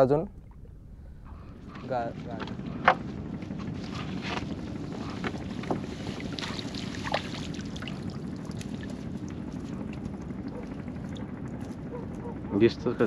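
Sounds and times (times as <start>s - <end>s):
wind buffeting microphone: 0.0s - 13.0s
water splashing and dripping: 6.0s - 9.0s.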